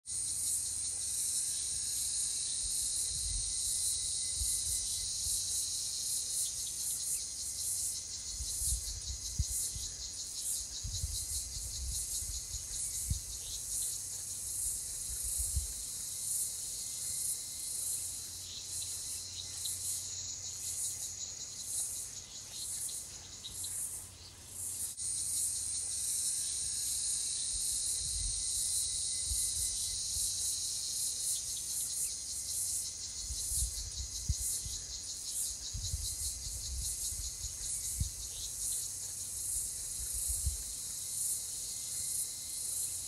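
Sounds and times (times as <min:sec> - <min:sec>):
insects buzzing: 0:00.1 - 0:43.0.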